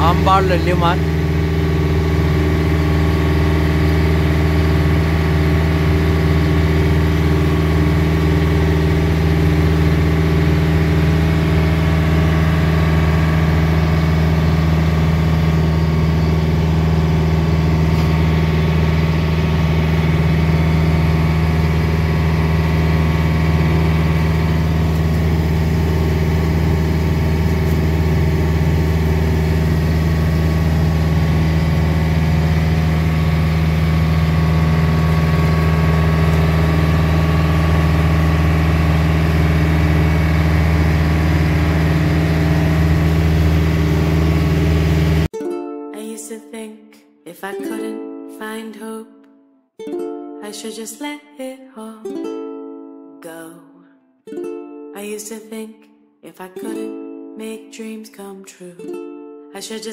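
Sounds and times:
motorboat engine droning: 0.0s - 45.3s.

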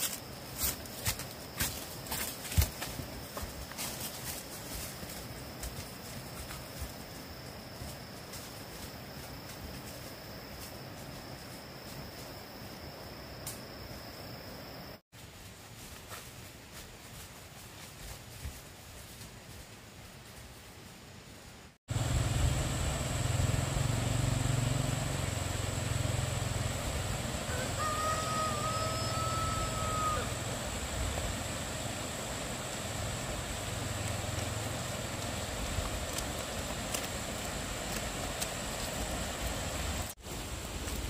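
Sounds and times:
steady low rumble: 21.9s - 27.5s
rooster crowing: 27.4s - 30.6s.

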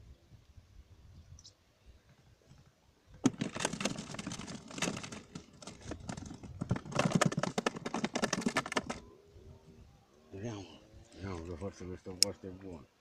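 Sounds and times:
clicking and rustling of fishing gear: 2.4s - 9.1s.

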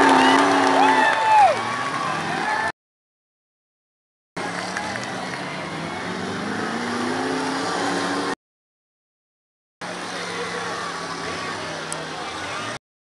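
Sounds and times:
car engines revving: 0.0s - 2.7s, 4.4s - 8.4s, 9.8s - 12.8s
loud noisy background: 9.8s - 12.8s.

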